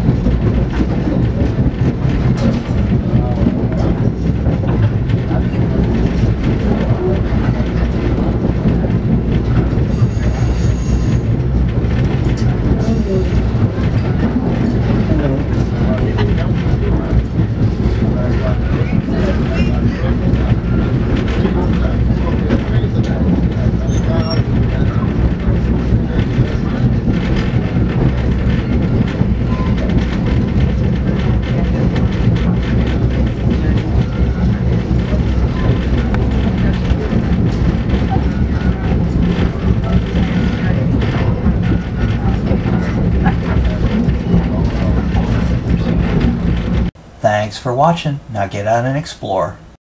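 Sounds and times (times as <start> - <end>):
train wheels rumbling on rails: 0.0 - 47.2.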